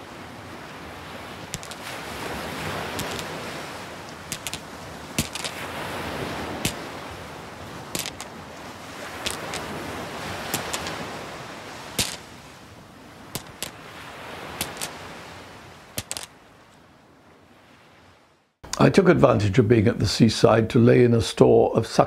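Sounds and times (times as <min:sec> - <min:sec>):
sea waves on shingle beach: 0:00.0 - 0:18.3
pebbles clicking together: 0:01.6 - 0:01.8, 0:03.0 - 0:03.3, 0:04.3 - 0:05.6, 0:08.0 - 0:08.3, 0:09.2 - 0:09.7, 0:10.5 - 0:11.0, 0:12.0 - 0:12.2, 0:13.4 - 0:13.8, 0:14.6 - 0:14.9, 0:16.0 - 0:16.3.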